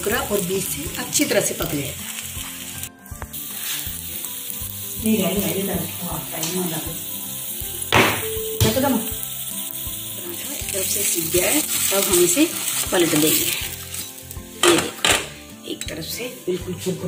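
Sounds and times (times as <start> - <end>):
flatbread sizzling in ghee: 0.0 - 17.0.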